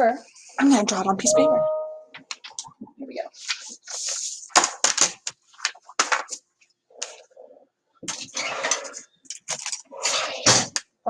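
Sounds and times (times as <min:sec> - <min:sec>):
paper rustling: 0:03.4 - 0:07.2.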